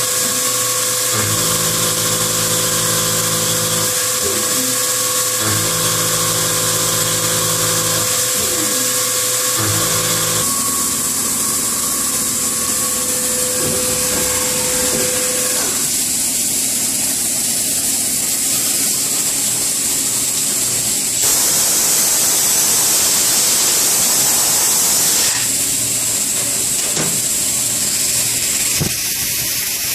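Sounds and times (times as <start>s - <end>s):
machine spindle whine: 0.0s - 18.2s
coolant spraying hiss: 10.5s - 29.9s.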